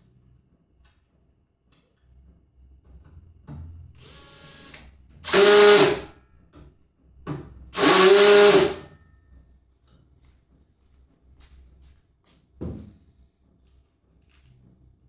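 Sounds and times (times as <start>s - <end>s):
cordless drill driving screws: 4.1s - 6.0s, 7.8s - 8.8s.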